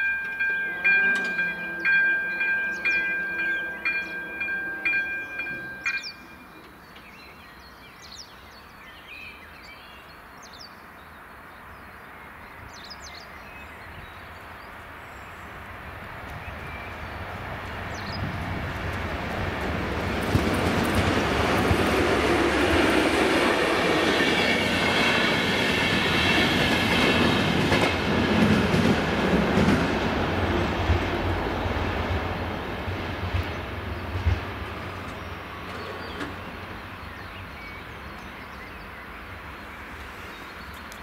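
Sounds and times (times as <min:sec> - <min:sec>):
electronic warning bell dinging: 0:00.0 - 0:06.5
approaching train rumble: 0:00.0 - 0:07.6, 0:14.4 - 0:41.0
bird chirps: 0:02.2 - 0:10.8.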